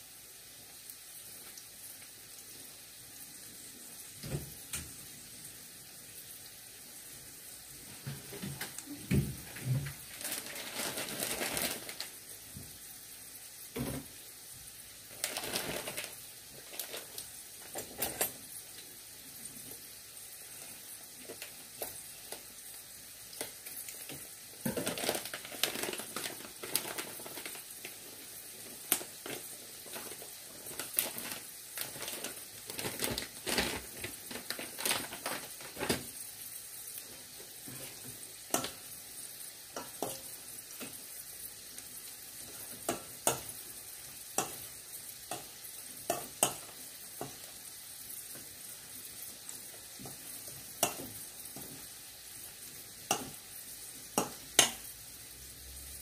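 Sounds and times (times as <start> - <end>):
fritters sizzling in hot oil: 0.0 - 56.0
oil crackling and spattering: 8.6 - 12.2, 15.1 - 18.1, 23.3 - 36.2.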